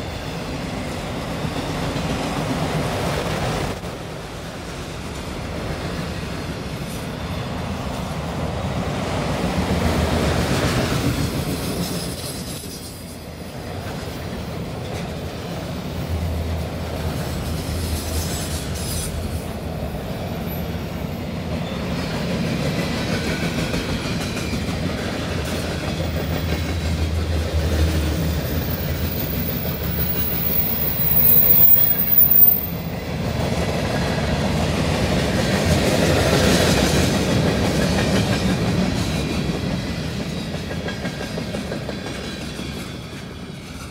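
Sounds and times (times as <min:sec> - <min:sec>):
freight train rumbling past: 0:00.0 - 0:43.9
high-pitched wheel squeal: 0:28.3 - 0:32.8.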